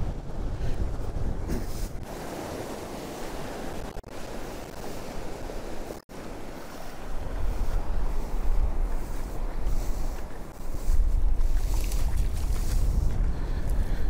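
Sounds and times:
wind on microphone: 0:00.0 - 0:14.0
surf washing onto beach: 0:01.5 - 0:10.5.

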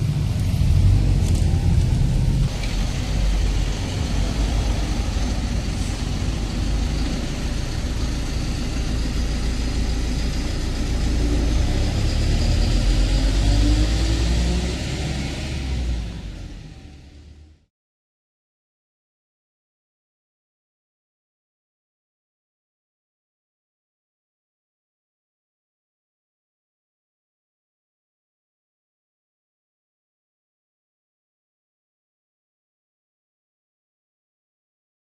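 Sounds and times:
tow truck engine driving off: 0:00.0 - 0:17.7.

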